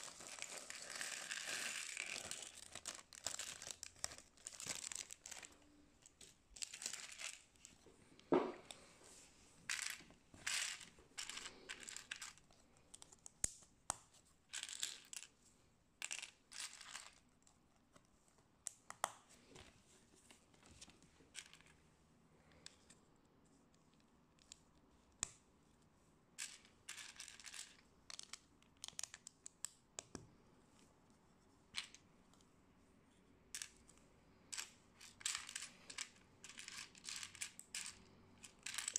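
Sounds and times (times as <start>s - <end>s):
plastic bricks clicking and clattering: 0.0s - 7.7s, 16.0s - 17.2s, 34.5s - 38.9s.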